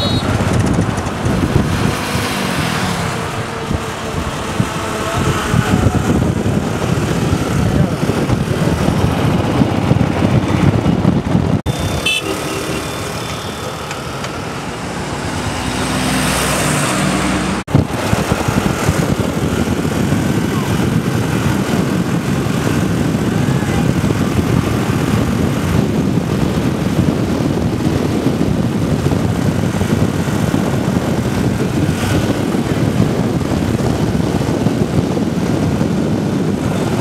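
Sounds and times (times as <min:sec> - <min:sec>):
horn beep: 0:00.0 - 0:00.5, 0:11.7 - 0:14.2
motorbike engine: 0:00.0 - 0:37.0
road noise: 0:00.0 - 0:37.0
wind on microphone: 0:00.0 - 0:37.0.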